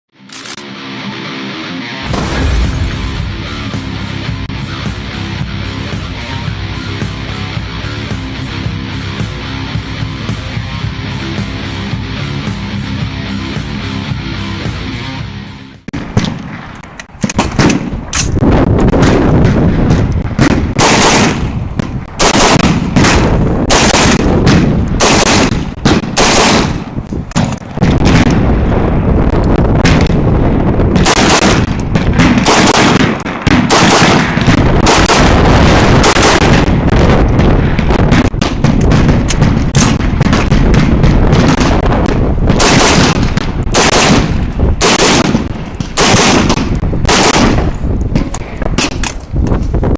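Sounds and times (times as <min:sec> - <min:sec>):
rifle shots in quick pairs: 0:16.0 - 0:28.4, 0:30.9 - 0:37.0, 0:37.6 - 0:49.2.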